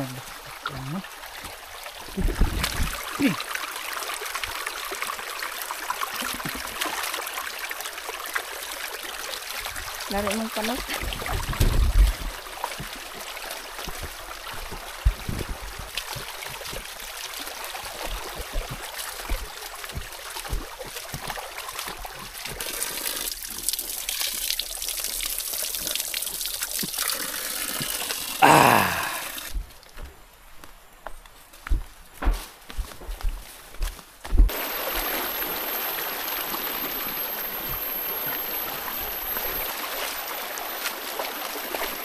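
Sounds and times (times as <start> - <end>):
stream trickling over rocks: 0.0 - 30.0, 34.5 - 42.0
footsteps splashing in water: 12.7 - 22.6.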